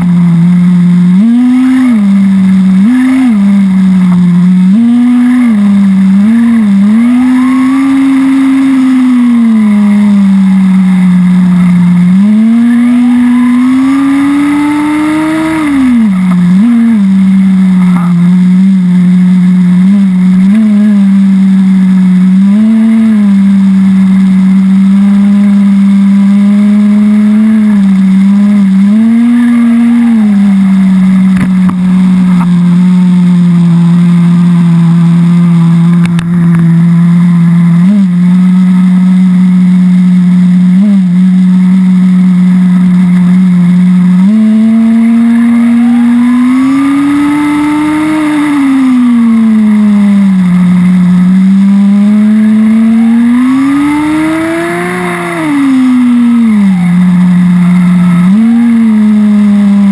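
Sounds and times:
small nitro engine buzzing and revving: 0.0s - 59.9s.

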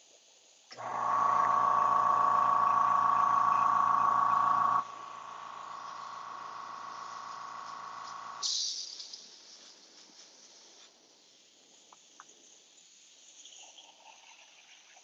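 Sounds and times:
air compressor motor humming: 0.7s - 8.4s.

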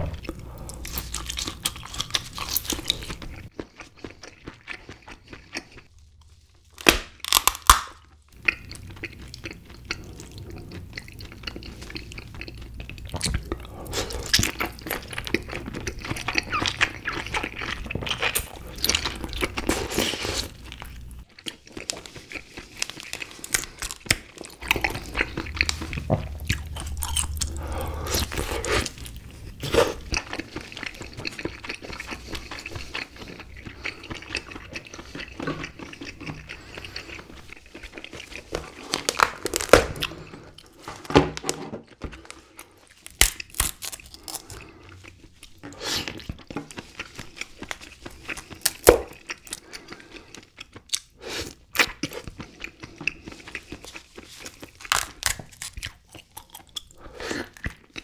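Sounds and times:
wet chewing: 0.2s - 6.4s, 7.2s - 40.8s, 42.2s - 58.0s
meat tearing from shell: 6.8s - 8.0s
crab shell cracking: 6.8s - 8.1s.

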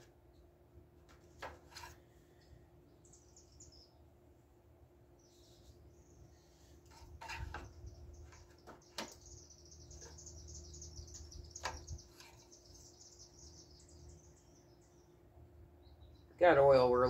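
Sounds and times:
high chirping: 7.5s - 15.2s.

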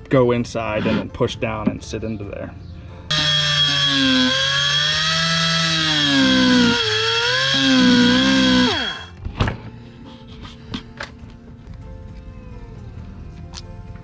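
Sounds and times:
power cutting tool whining: 3.1s - 9.1s.

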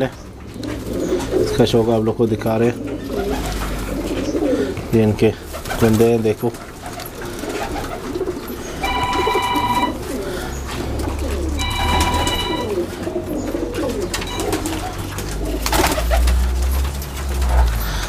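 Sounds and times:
pigeons cooing: 0.0s - 18.0s
pigeon wings flapping: 2.8s - 4.6s, 5.4s - 18.0s
steady high tone: 8.8s - 10.0s, 11.6s - 12.9s, 14.2s - 14.8s.

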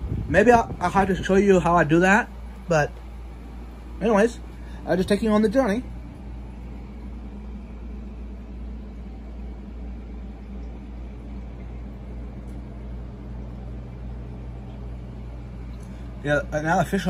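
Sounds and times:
aquarium filter humming and hissing: 0.0s - 17.0s.

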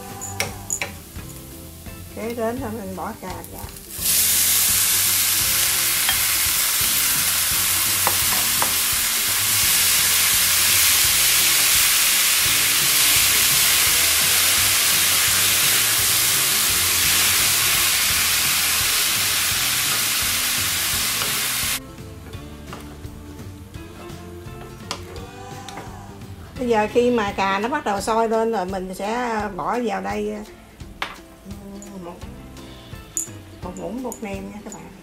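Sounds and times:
tomatoes sizzling in a frying pan: 0.0s - 23.7s.

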